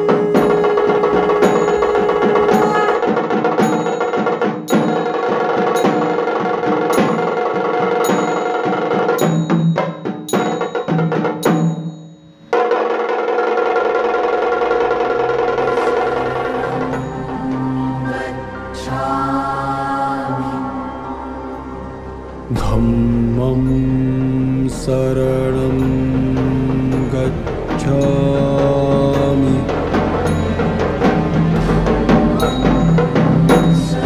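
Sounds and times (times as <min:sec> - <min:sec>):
sustained music tones: 0:00.0 - 0:12.6, 0:14.5 - 0:34.0
percussion beat of sharp strikes: 0:00.0 - 0:17.9, 0:25.4 - 0:34.0.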